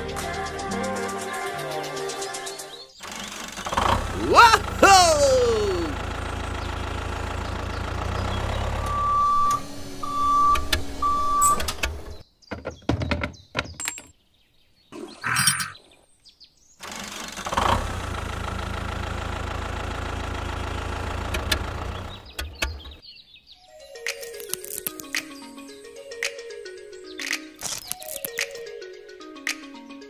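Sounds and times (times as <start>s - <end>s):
tractor engine idling: 3.2s - 12.2s, 16.9s - 23.0s
clicks: 24.1s - 25.3s, 27.2s - 28.6s.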